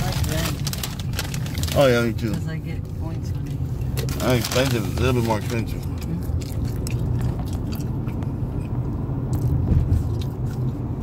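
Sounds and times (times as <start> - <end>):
car cabin rumble: 0.0 - 11.0
man chewing fries: 3.9 - 11.0.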